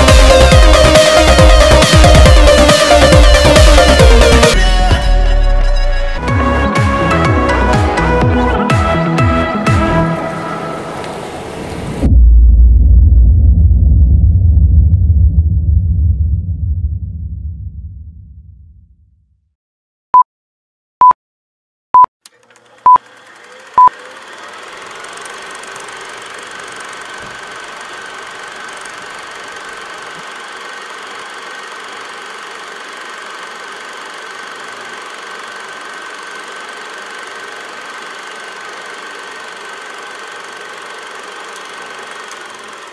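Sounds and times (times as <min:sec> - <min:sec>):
film projector running: 0:00.0 - 0:04.6, 0:22.2 - 0:42.9.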